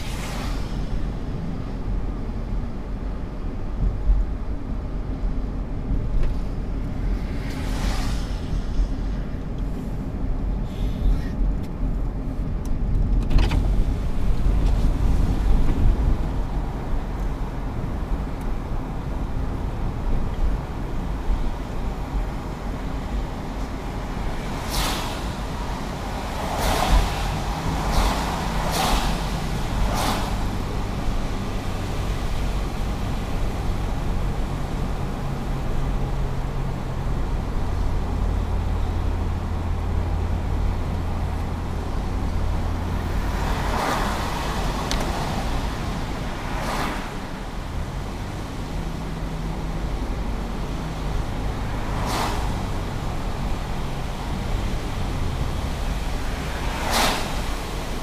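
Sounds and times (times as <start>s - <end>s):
car engine and tyre noise: 0.0s - 58.0s
hissing whooshes: 24.4s - 30.8s, 56.0s - 58.0s.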